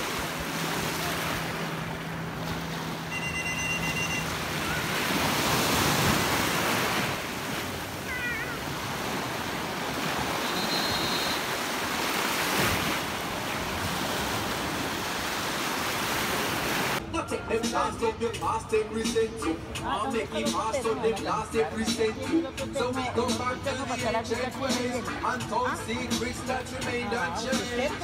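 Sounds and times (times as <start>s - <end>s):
sea waves washing over reef: 0.0s - 17.0s.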